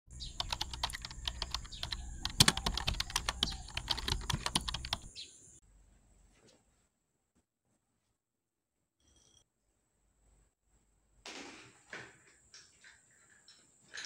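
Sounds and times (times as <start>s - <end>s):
keyboard typing: 0.2s - 5.2s.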